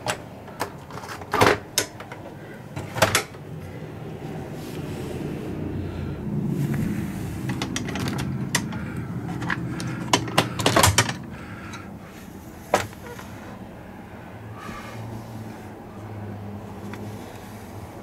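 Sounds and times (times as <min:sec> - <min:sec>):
plastic bins handled: 0:00.0 - 0:03.5, 0:06.7 - 0:11.4, 0:12.5 - 0:13.6
steady low hum: 0:01.7 - 0:18.0.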